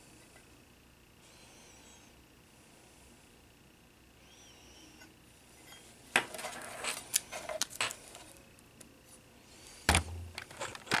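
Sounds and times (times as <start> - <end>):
plastic clicks and clatter: 9.9 - 11.0.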